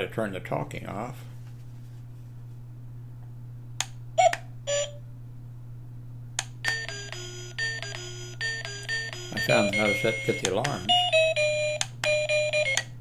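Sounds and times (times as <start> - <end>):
steady low hum: 0.0 - 13.0
alarm ring tone of beeping notes: 6.7 - 12.8.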